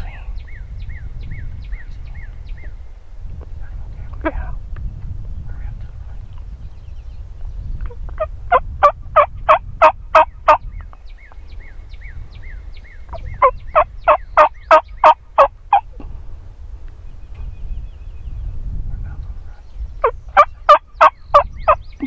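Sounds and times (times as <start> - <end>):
turkey call yelping: 13.1 - 15.8, 20.4 - 21.5.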